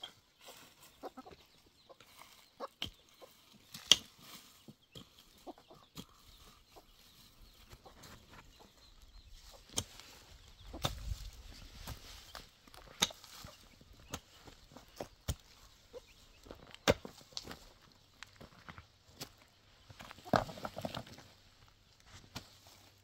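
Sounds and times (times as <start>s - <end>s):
chickens clucking: 0.0s - 18.2s
hoe chopping stony soil: 3.7s - 4.3s, 12.7s - 15.8s, 16.4s - 17.6s.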